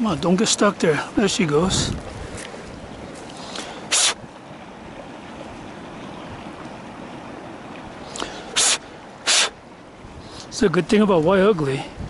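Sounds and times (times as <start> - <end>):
river water rushing: 0.0 - 12.0
short sharp hiss: 3.4 - 4.2, 8.1 - 9.6.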